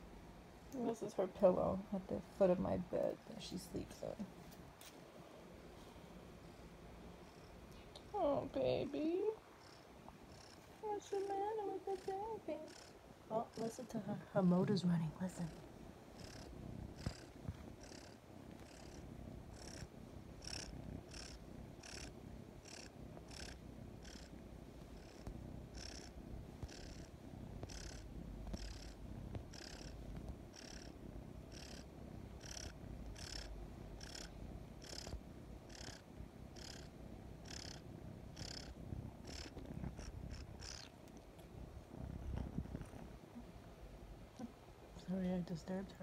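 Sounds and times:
kitten purring: 0.3 - 46.0
kitten rhythmic sucking: 16.1 - 41.5.

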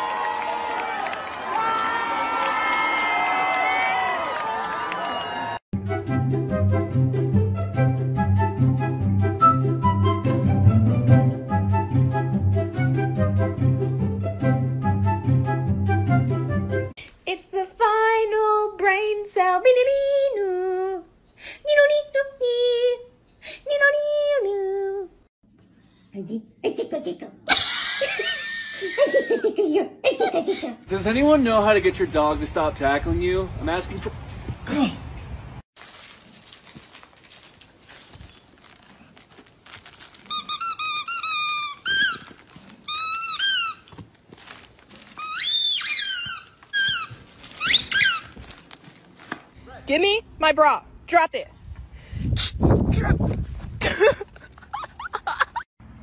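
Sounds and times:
high-pitched squeaking: 40.2 - 44.0, 45.0 - 48.5.

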